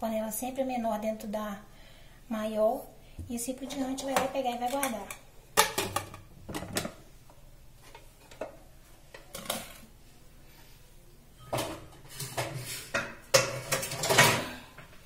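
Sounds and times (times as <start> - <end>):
pots clattering and scraping: 3.6 - 7.0, 7.8 - 10.0, 11.4 - 14.9
metal cooking pots clinking: 4.0 - 7.0, 11.4 - 14.5.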